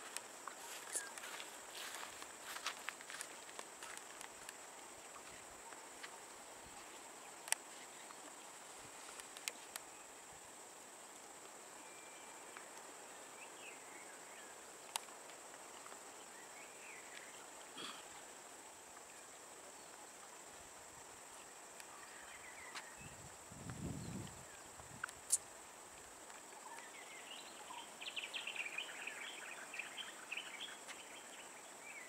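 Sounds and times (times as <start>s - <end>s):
insect drone: 0.0s - 32.0s
faint bird chirps: 0.5s - 2.1s, 11.8s - 14.6s, 26.4s - 32.0s.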